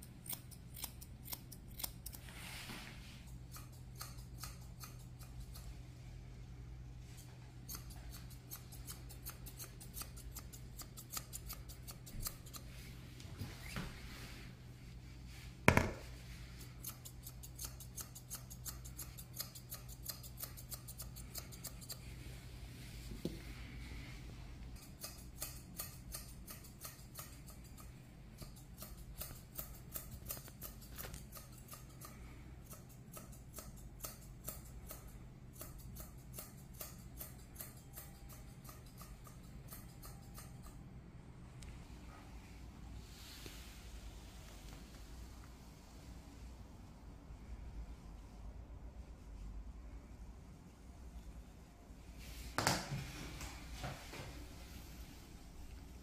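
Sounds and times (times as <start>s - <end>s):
scissors snipping fur: 0.0s - 2.4s, 3.2s - 5.8s, 7.1s - 12.7s, 16.6s - 22.2s, 24.7s - 40.8s.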